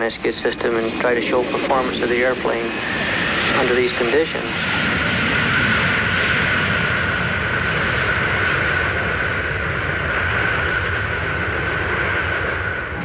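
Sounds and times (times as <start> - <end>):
high even engine whine: 0.0 - 13.0
jet engines running: 0.0 - 13.0.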